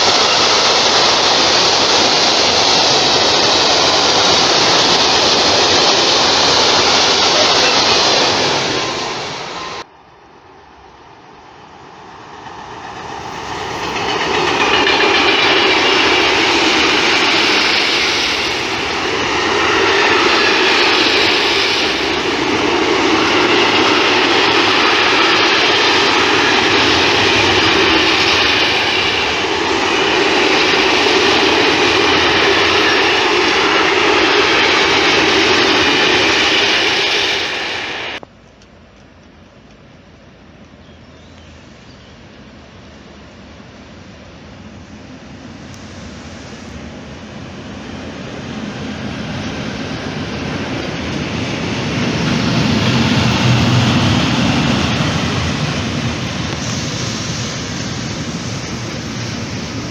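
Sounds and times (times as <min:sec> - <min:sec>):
freight train passing: 0:00.0 - 0:59.9
wagons rolling over rails: 0:12.4 - 0:37.7.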